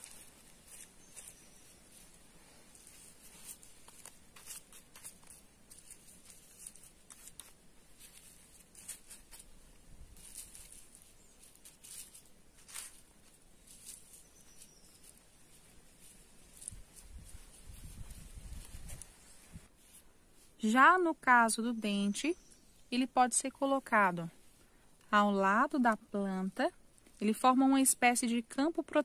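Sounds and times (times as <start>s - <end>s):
fingers scratching in dry soil: 0.0s - 21.0s.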